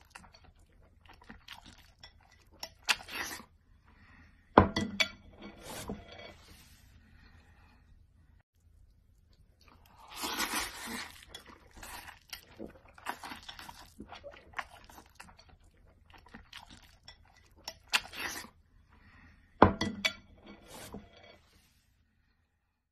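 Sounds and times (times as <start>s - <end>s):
chewing and mouth noises: 0.0s - 3.5s, 8.6s - 18.6s
person slurping noodles: 9.9s - 14.4s.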